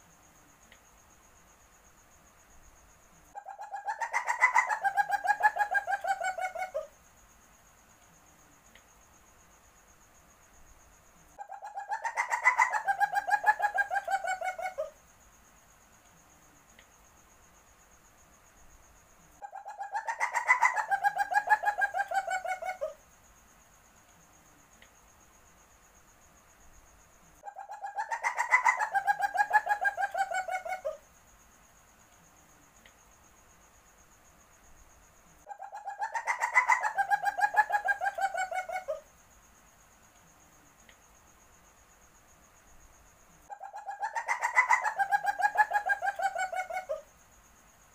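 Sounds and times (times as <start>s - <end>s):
civet chattering mating call: 43.5s - 47.1s.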